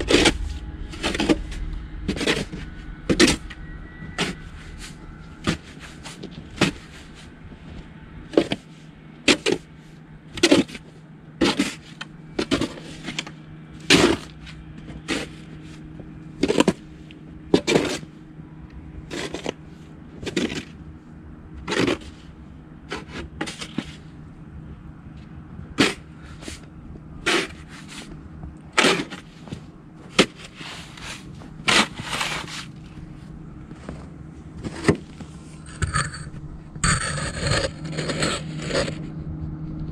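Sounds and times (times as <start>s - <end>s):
snow shovel scraping sidewalk: 25.8s - 28.2s, 28.8s - 39.1s.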